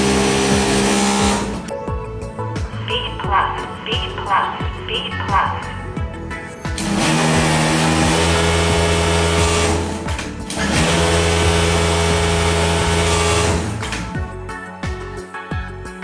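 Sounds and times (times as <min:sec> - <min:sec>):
industrial sewing machine stitching: 0:00.0 - 0:01.7, 0:06.7 - 0:14.1
background music: 0:00.0 - 0:16.0.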